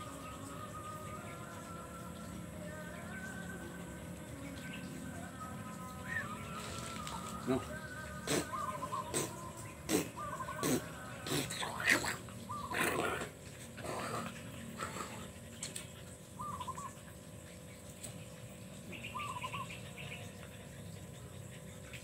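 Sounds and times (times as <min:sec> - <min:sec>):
bird chirping calls: 0:05.8 - 0:13.2, 0:16.4 - 0:17.0, 0:18.8 - 0:20.6.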